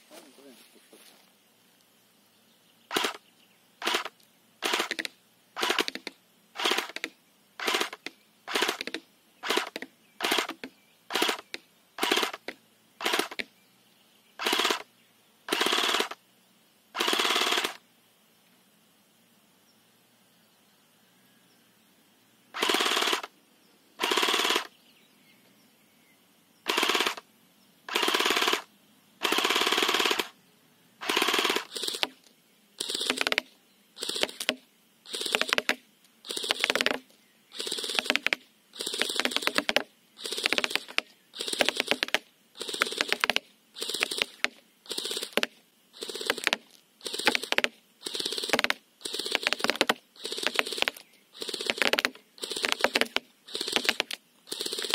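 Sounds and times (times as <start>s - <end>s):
airsoft gun bursts: 2.9s - 3.2s, 3.8s - 13.5s, 14.4s - 14.9s, 15.5s - 16.2s, 17.0s - 17.8s, 22.5s - 23.3s, 24.0s - 24.7s, 26.7s - 27.2s, 27.9s - 30.4s, 31.0s - 32.2s, 32.8s - 54.9s.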